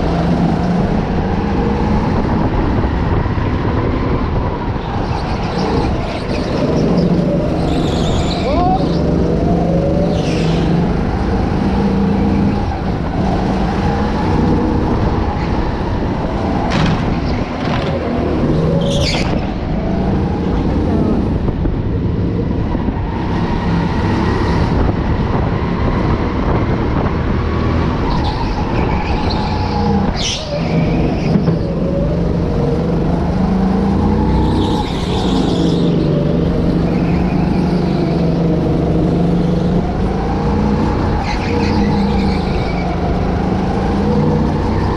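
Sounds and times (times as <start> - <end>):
sharp knocks: 16.7 - 18.0.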